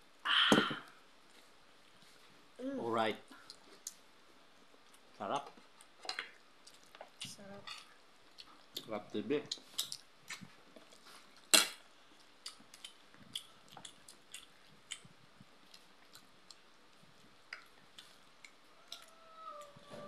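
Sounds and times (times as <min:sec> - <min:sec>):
chewing and lip smacks: 0:05.7 - 0:07.4, 0:12.1 - 0:19.8.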